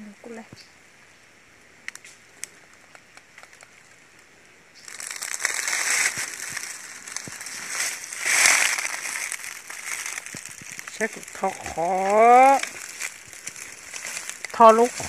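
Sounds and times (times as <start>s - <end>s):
faint clicks: 1.8s - 4.0s
dry leaf litter rustling: 4.8s - 15.0s.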